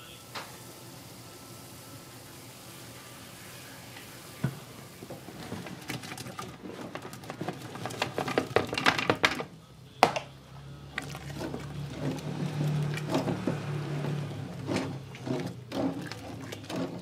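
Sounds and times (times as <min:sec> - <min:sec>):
food knocking against metal pot: 0:04.4 - 0:10.3
splashing in syrup: 0:11.0 - 0:17.0.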